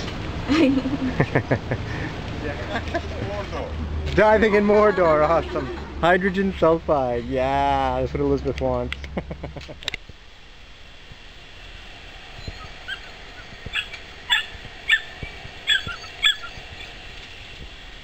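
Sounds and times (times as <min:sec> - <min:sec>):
puppy whining and yipping: 0:12.4 - 0:16.9.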